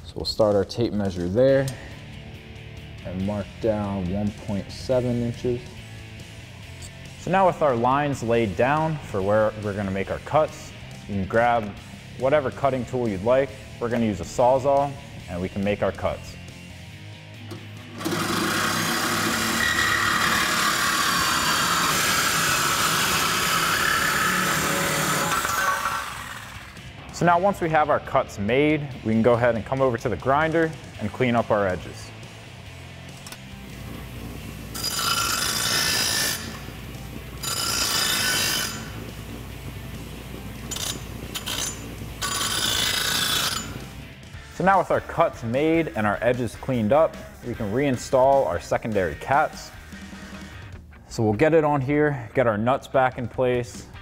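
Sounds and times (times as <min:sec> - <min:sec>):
bench grinder humming: 0:17.6 - 0:26.9, 0:33.5 - 0:44.0
reciprocating saw cutting metal pipe: 0:17.9 - 0:26.8, 0:34.7 - 0:39.4, 0:40.6 - 0:44.0
grinding wheel screeching on steel: 0:18.0 - 0:26.8, 0:34.7 - 0:39.2, 0:40.6 - 0:44.0.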